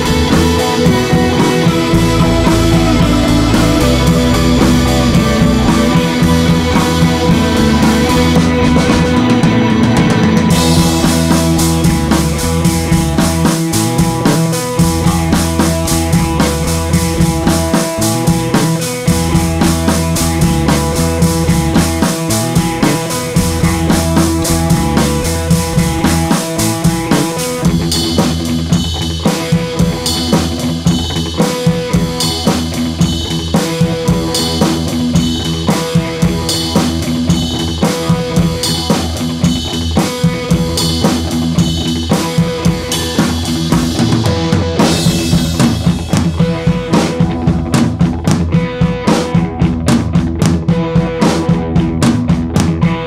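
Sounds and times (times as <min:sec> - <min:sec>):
drum kit beat: 0:00.0 - 0:53.0
sustained instrumental notes: 0:00.1 - 0:13.2.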